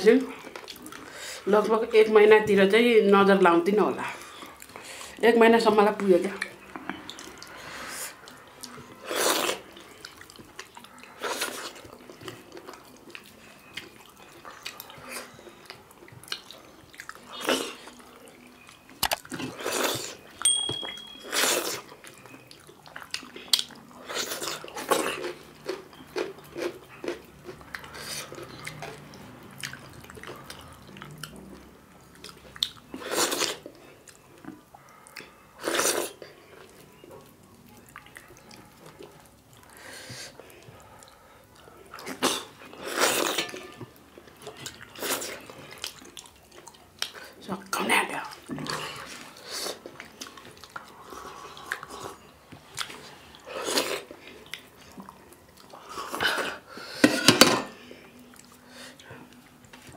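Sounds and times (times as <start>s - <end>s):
wet chewing: 0.1s - 1.7s, 5.8s - 56.8s.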